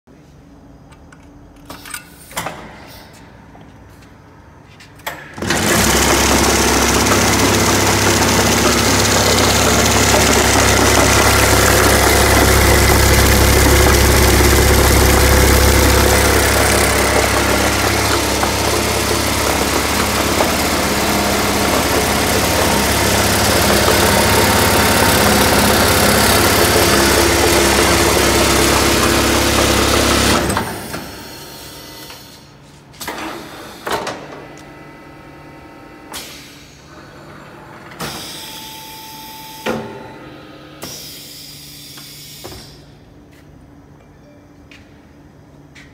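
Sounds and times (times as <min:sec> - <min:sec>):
vibrating machine humming and buzzing: 0:05.4 - 0:32.2.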